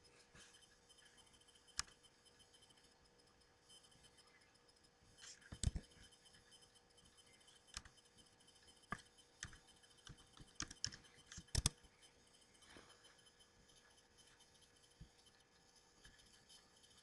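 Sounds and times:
faint electrical hum: 0.0 - 17.0
keyboard and mouse clicks: 1.7 - 2.0, 5.2 - 6.0, 7.7 - 8.0, 8.9 - 11.8.

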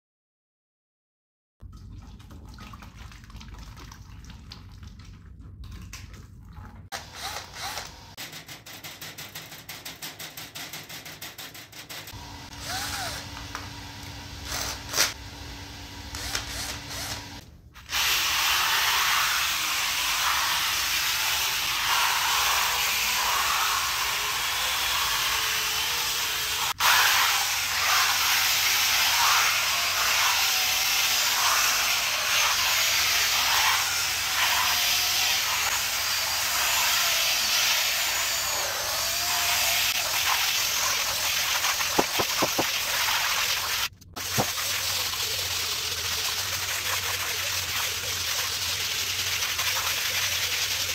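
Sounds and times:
screwdriver motor whine: 7.0 - 8.2, 12.2 - 17.4, 29.2 - 40.0
brush scrubbing wet mat: 40.0 - 50.9.

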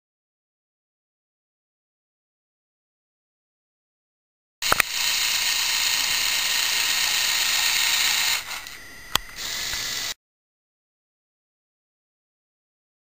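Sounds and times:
sharp click: 4.6 - 4.9
toy motors whirring gears: 4.6 - 10.2.

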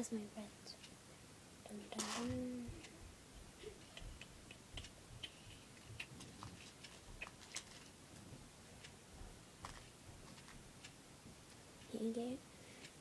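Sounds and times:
plastic beads clicking: 1.9 - 2.9.

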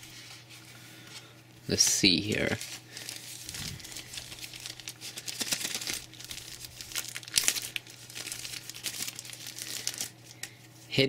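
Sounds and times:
plastic bag crinkling: 2.1 - 10.4.

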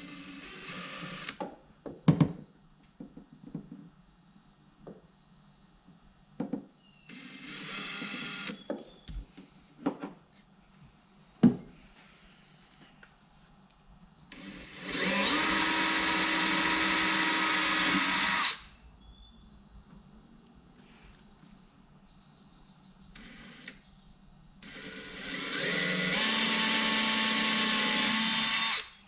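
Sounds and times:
cordless drill drilling: 0.0 - 1.4, 7.1 - 8.7, 14.3 - 18.7, 24.6 - 29.0.

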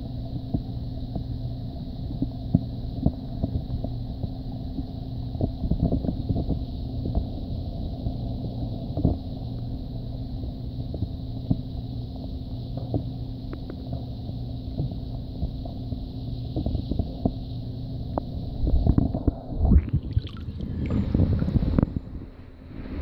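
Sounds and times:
underwater flowing water rumble: 0.0 - 23.0
small underwater clicks and knocks: 5.4 - 7.3, 12.7 - 14.1, 18.1 - 22.0.

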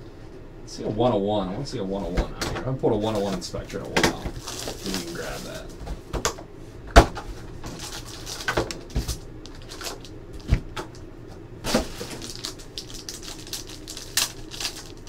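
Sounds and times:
foil wrappers crinkling: 4.2 - 5.7, 7.6 - 10.6, 11.7 - 15.0.

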